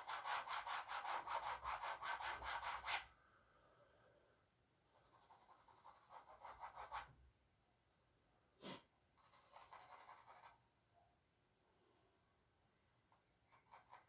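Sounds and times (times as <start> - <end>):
charcoal scratching on canvas: 0.0 - 3.1, 4.9 - 7.1, 9.2 - 10.6, 13.5 - 14.0.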